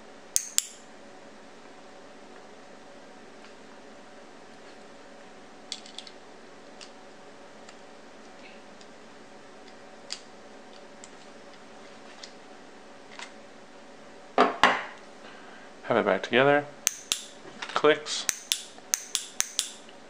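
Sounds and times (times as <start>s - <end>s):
faint steady hum: 0.0s - 20.0s
small metal parts clicking: 0.4s - 0.8s, 16.9s - 17.3s, 18.3s - 19.8s.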